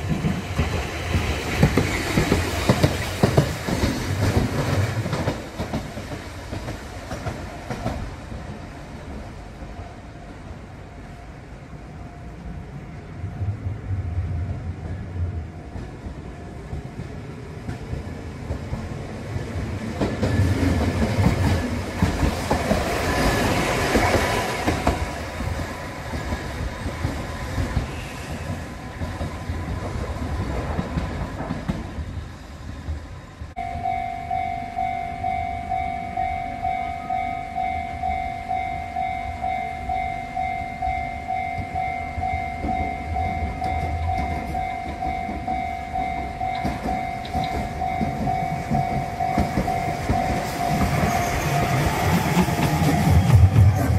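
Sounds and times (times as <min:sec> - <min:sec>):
tram wheels clattering over rails: 0:00.0 - 0:09.6, 0:13.4 - 0:33.2, 0:41.6 - 0:53.9
level crossing warning bell: 0:33.6 - 0:52.1.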